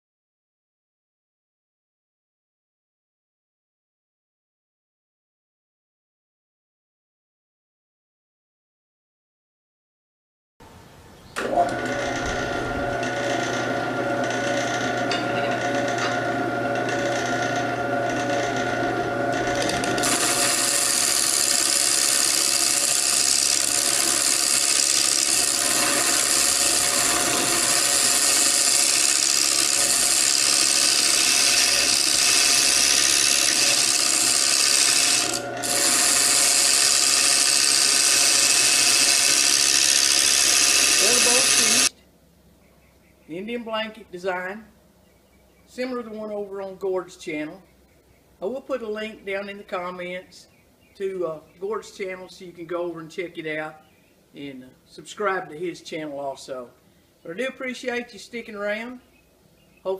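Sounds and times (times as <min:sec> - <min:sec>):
wood lathe motor hum: 0:11.4 - 0:41.9
gouge cutting wood hissing: 0:15.6 - 0:41.9.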